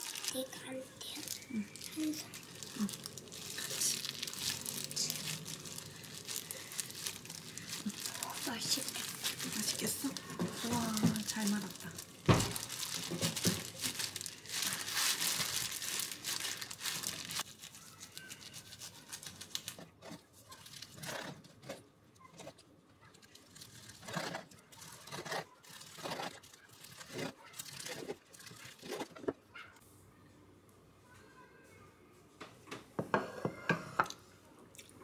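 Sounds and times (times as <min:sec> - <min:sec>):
plastic glove crinkling: 0:00.0 - 0:21.5, 0:23.0 - 0:29.2
knife crunching through seaweed roll: 0:23.5 - 0:29.1.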